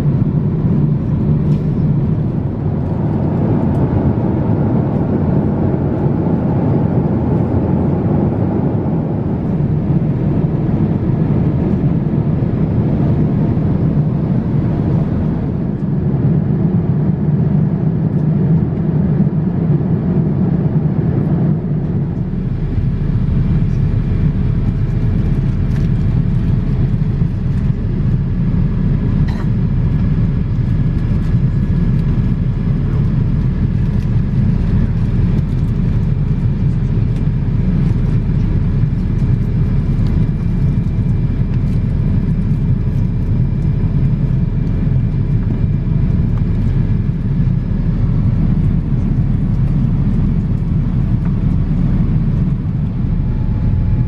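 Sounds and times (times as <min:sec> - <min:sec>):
airliner cabin rumble: 0:00.0 - 0:54.0.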